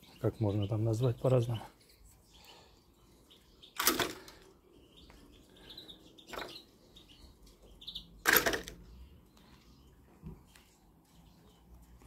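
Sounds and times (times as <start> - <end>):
faint bird chirps: 0.0 - 8.2.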